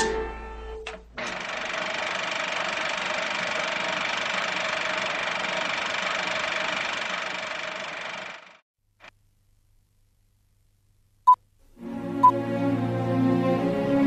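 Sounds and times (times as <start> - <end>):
music jingle: 0.0 - 0.9.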